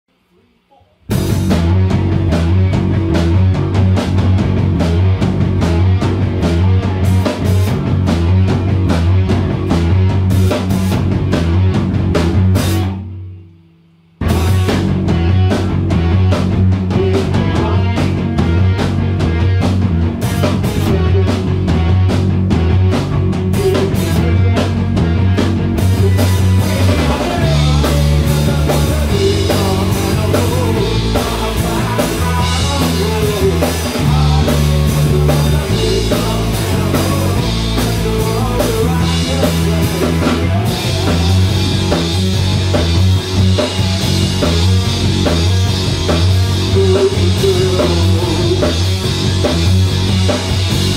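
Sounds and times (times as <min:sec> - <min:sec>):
bass guitar: 0:01.0 - 0:50.9
drum kit: 0:01.0 - 0:50.9
electric guitar: 0:01.0 - 0:50.9.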